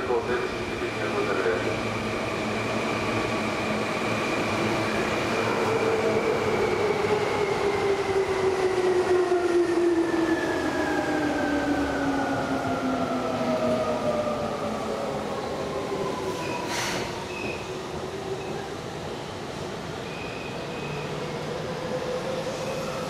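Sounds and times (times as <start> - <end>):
train wheels rumbling on rails: 15.9 - 20.0.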